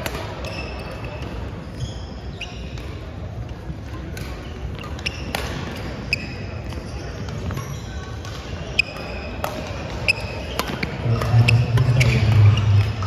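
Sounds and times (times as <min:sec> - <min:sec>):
rackets striking shuttlecock: 0:00.0 - 0:01.6, 0:02.6 - 0:13.0
sneakers squeaking on hardwood: 0:04.4 - 0:08.1, 0:08.7 - 0:13.0.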